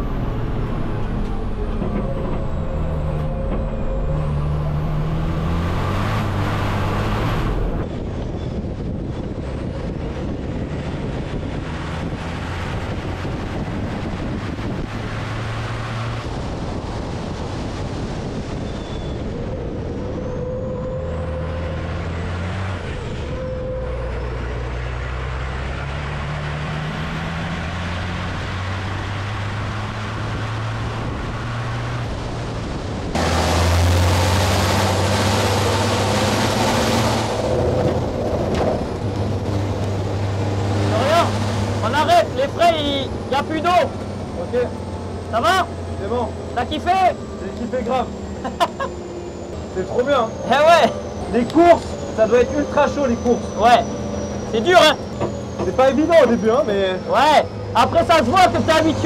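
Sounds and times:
truck diesel engine shifting pitch: 0.0 - 59.0
loud rushing noise: 25.1 - 44.0.

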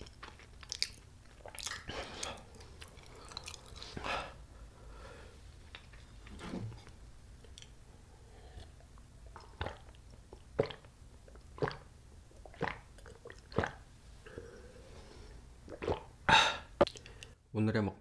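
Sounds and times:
person gulping juice: 0.0 - 4.4, 8.6 - 14.7, 15.6 - 17.3.

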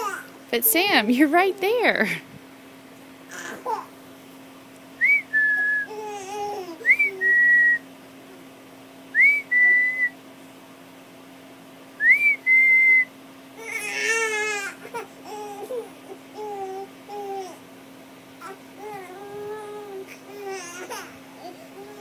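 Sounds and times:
baby fussing and whining: 0.0 - 0.3, 3.3 - 4.0, 5.9 - 7.4, 13.6 - 17.6, 18.4 - 22.0
person whistling a call: 5.0 - 5.9, 6.9 - 7.8, 9.2 - 10.2, 12.0 - 13.1.

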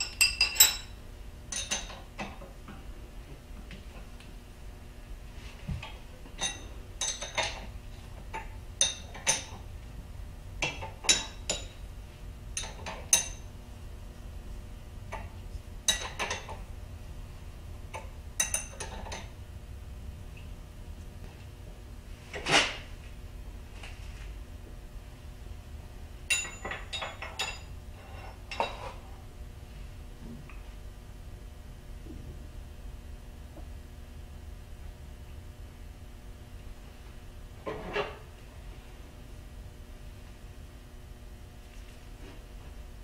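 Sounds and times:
wrench clinking on metal: 0.0 - 2.0, 6.4 - 7.6, 10.6 - 11.8, 12.6 - 13.4, 15.9 - 16.5, 18.4 - 19.3, 26.3 - 27.7.

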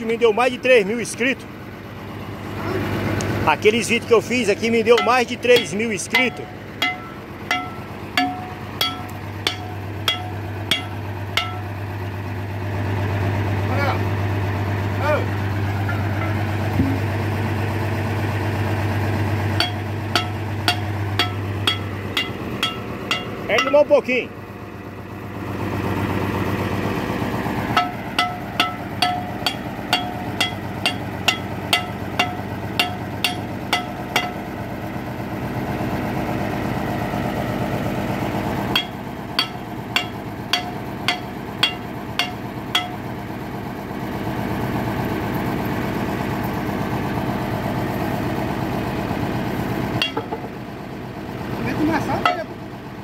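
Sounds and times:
engine running: 0.0 - 53.0
sharp metallic knocks: 4.8 - 11.8, 15.9 - 17.2, 19.6 - 24.0, 27.7 - 34.5, 38.7 - 43.0, 50.0 - 50.6, 52.2 - 52.5.

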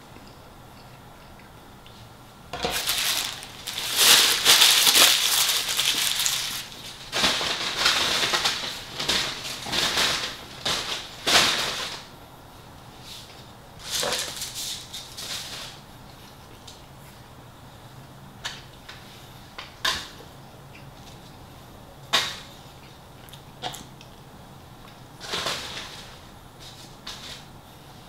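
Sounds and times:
paper wrapper crumpling: 2.7 - 12.1, 13.8 - 15.8.

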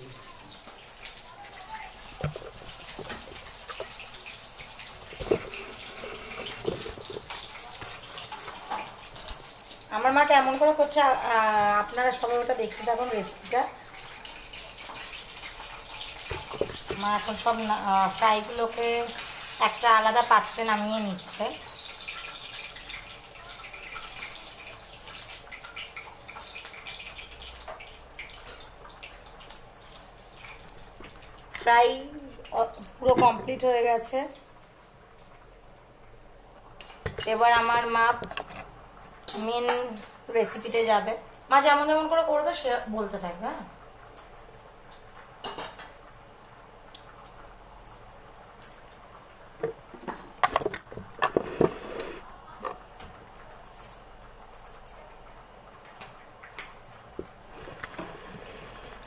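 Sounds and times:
hot oil sizzling and crackling: 0.0 - 59.0.

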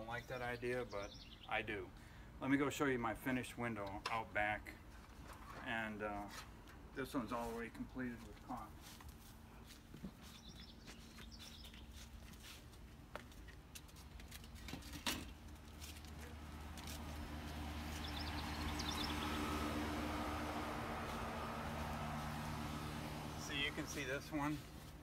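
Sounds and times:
bird chirps: 0.2 - 1.5, 10.2 - 12.0, 17.9 - 19.7
footsteps: 8.2 - 18.2.

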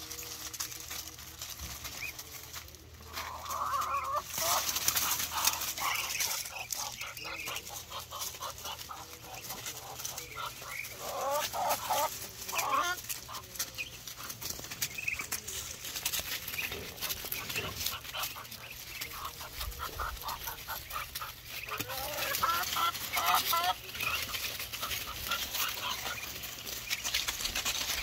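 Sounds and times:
ducks pecking and rustling leaves: 0.0 - 28.0
duck clucking calls: 3.1 - 15.2, 16.6 - 27.1.

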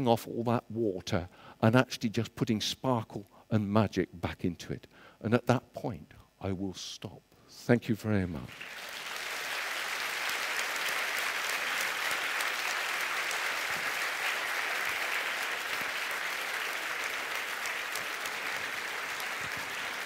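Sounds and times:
audience applauding: 8.5 - 20.0.

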